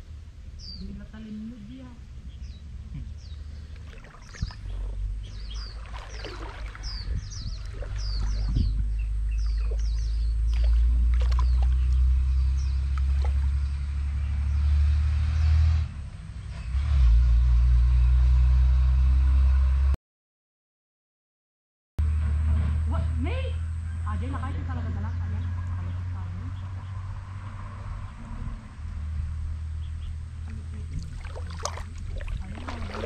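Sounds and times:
low rumble: 0.0 - 14.4
high falling bird chirps: 3.2 - 13.8.

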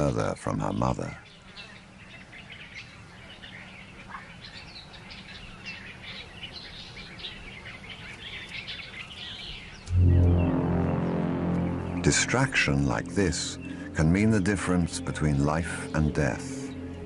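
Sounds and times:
birds chirping: 0.0 - 17.0
low steady rumble: 9.9 - 14.4.

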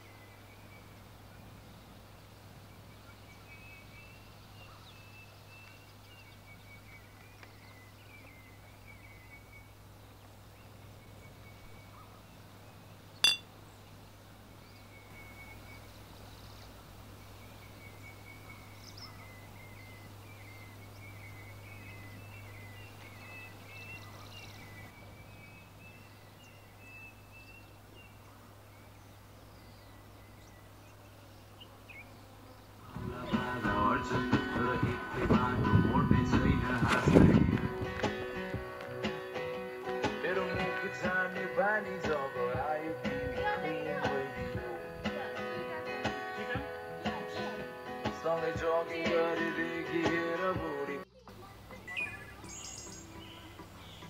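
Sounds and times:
drinking glasses clinking: 13.2 - 13.5.

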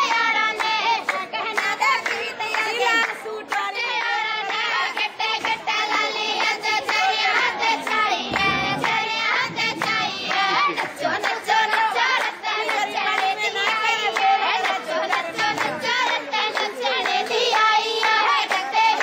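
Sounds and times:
hands clapping along: 0.0 - 19.0.

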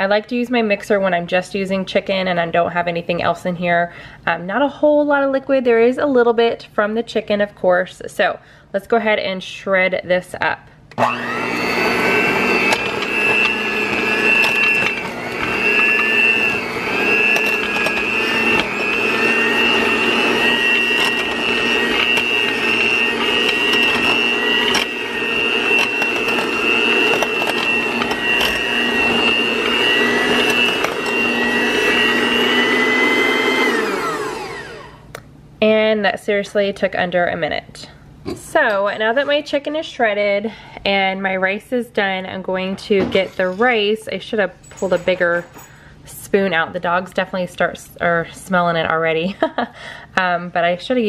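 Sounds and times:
electric hand mixer whining: 10.9 - 35.1.

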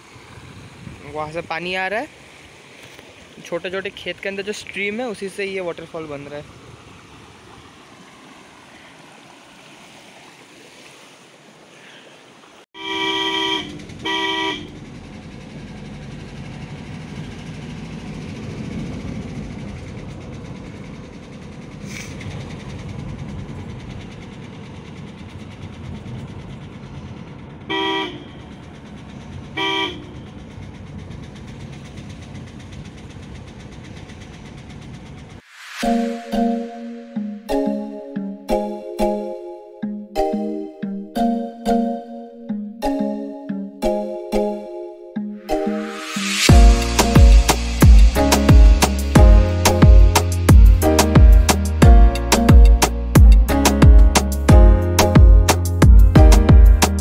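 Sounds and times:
stream running over rocks: 0.0 - 12.7
car horn double honks: 12.8 - 14.8, 27.7 - 28.5, 29.6 - 30.3
car engine and road rumble: 12.8 - 37.0, 45.6 - 57.0.

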